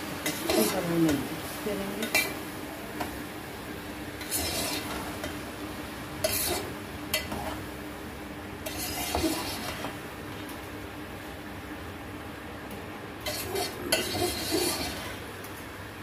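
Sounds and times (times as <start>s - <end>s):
spoon scraping pot: 4.2s - 5.3s, 6.2s - 7.6s, 8.6s - 9.9s, 13.2s - 15.2s.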